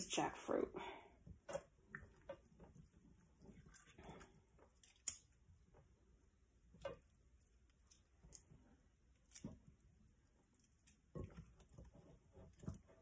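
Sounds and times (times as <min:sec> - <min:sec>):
wet squishing of fruit mashed: 0:01.3 - 0:05.7.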